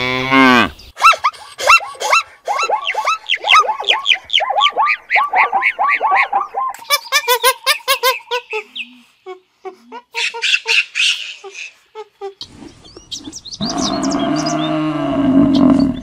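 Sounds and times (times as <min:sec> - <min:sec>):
zebra barking: 0:01.0 - 0:06.8
high clipped animal calls: 0:01.0 - 0:08.7.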